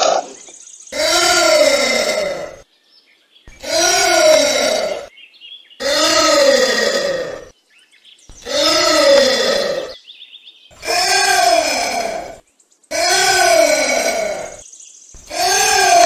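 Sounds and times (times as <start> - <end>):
anteater calling: 8.3 - 10.0, 10.7 - 14.6, 15.2 - 16.0.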